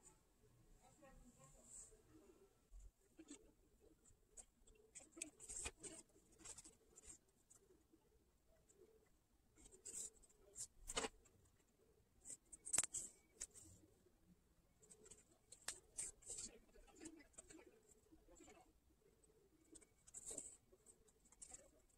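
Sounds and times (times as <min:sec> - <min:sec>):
needle and thread through fabric: 0:02.7 - 0:07.7, 0:14.8 - 0:21.9.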